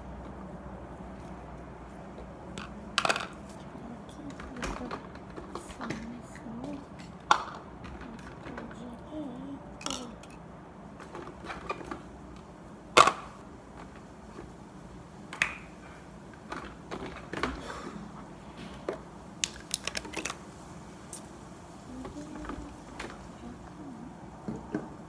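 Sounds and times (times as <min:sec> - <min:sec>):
small objects clicking and knocking: 0:09.8 - 0:10.4, 0:19.4 - 0:20.4.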